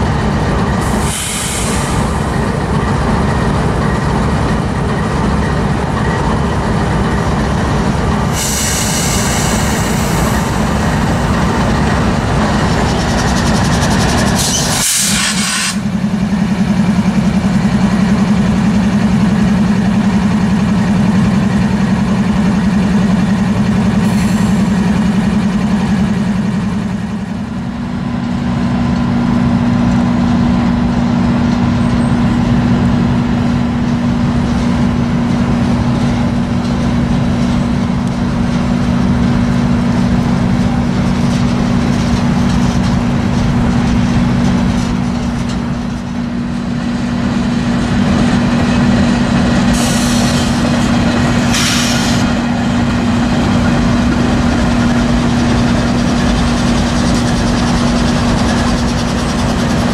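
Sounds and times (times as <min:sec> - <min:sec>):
diesel locomotives humming: 0:00.0 - 0:59.9
freight cars rumbling on rails: 0:00.0 - 0:59.9
hiss: 0:00.8 - 0:02.1, 0:08.3 - 0:10.6, 0:14.4 - 0:15.8, 0:49.7 - 0:50.6, 0:51.5 - 0:52.3.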